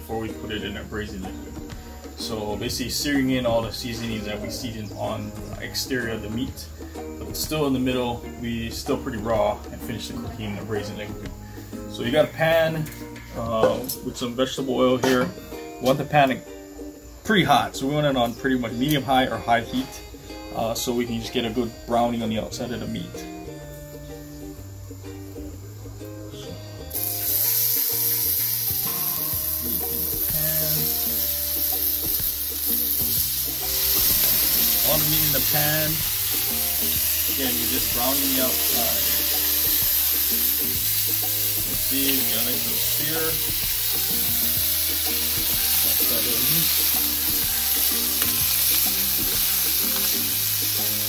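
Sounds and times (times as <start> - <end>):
background music: 0.0 - 51.0
meat sizzling in frying pan: 26.9 - 51.0.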